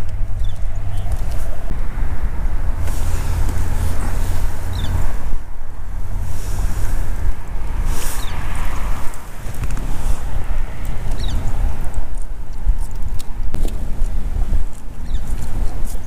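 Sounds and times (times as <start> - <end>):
wind buffeting microphone: 0.0 - 16.0
hissing rustles: 2.8 - 12.0.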